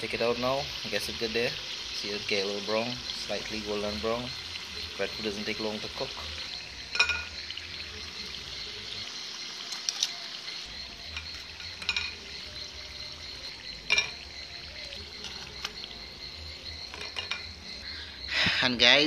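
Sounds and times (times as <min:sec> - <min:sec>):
food sizzling in hot oil: 0:00.0 - 0:19.0
metal tongs clinking against pot: 0:06.9 - 0:07.4, 0:09.7 - 0:10.2, 0:11.1 - 0:12.3, 0:13.9 - 0:14.2, 0:16.9 - 0:17.5.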